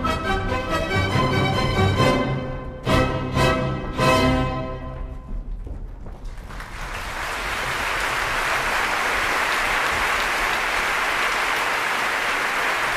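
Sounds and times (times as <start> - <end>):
audience applause: 6.2 - 12.9.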